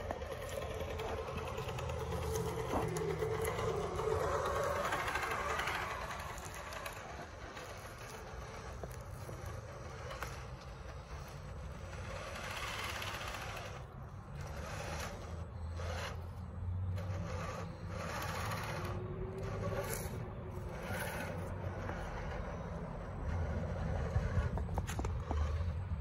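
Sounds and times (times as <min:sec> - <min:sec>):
toy truck motor running: 0:00.0 - 0:26.0
tyres scraping through sand: 0:00.0 - 0:26.0.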